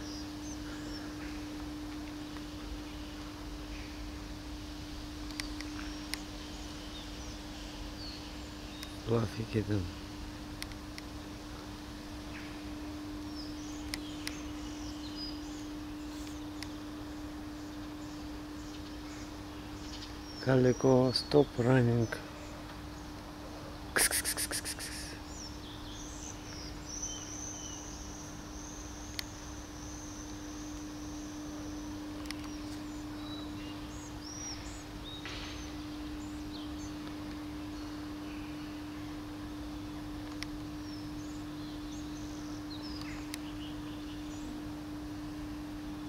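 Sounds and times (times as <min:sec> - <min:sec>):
birds chirping faintly: 0:00.0 - 0:46.0
low steady hum: 0:00.0 - 0:46.0
sharp clicks: 0:05.3 - 0:06.2
faint short chirps: 0:24.0 - 0:25.2
high-pitched insect trill: 0:24.0 - 0:25.3.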